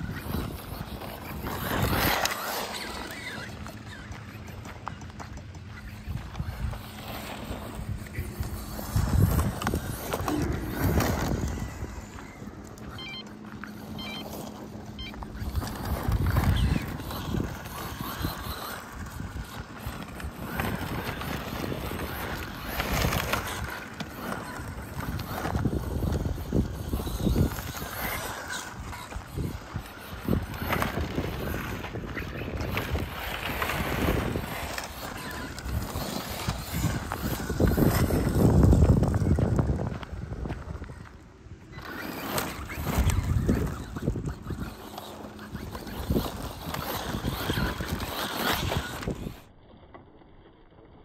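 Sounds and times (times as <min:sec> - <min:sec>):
wind rumble on microphone: 0:00.0 - 0:12.7, 0:15.2 - 0:49.5
electric motor whining: 0:00.0 - 0:49.6.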